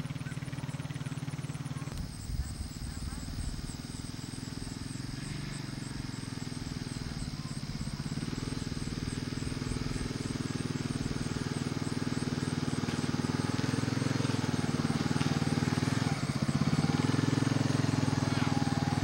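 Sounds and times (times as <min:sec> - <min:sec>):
atv engine running: 0:00.0 - 0:19.0.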